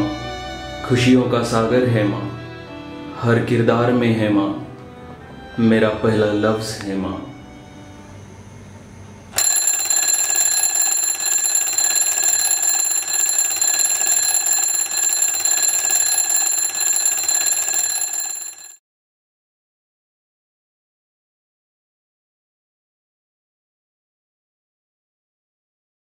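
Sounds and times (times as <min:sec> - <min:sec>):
alarm ringing: 0:09.4 - 0:18.8.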